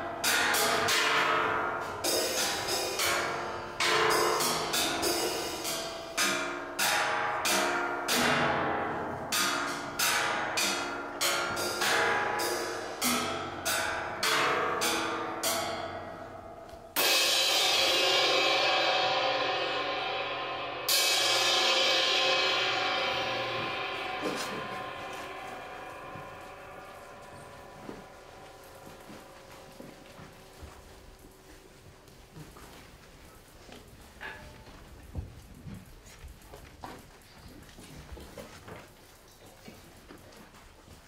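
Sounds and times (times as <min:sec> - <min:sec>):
loud cymbal crashes: 0:00.0 - 0:16.4, 0:17.0 - 0:29.9
ringing percussion hits: 0:00.0 - 0:31.4.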